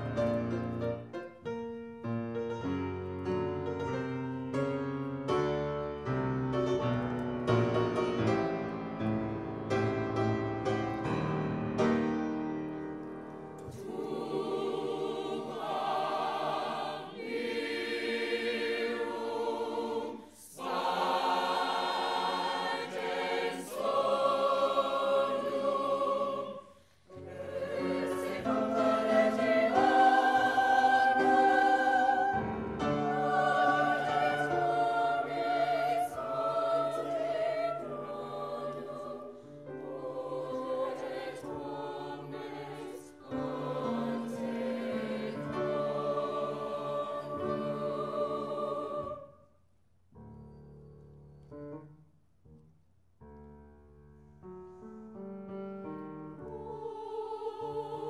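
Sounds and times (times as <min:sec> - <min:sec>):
choir singing held chords: 0:13.3 - 0:49.6, 0:56.3 - 0:58.0.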